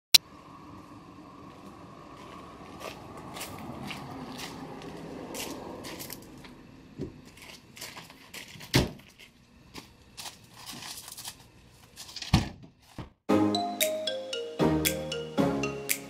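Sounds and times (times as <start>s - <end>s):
footsteps crunching on gravel: 0.8s - 6.5s, 7.1s - 12.2s.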